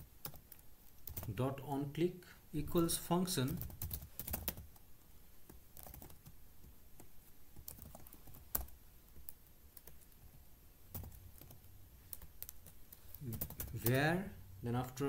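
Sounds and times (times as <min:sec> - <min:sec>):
computer keyboard typing: 0:00.0 - 0:01.4, 0:03.4 - 0:04.8, 0:05.5 - 0:10.3, 0:10.9 - 0:14.0.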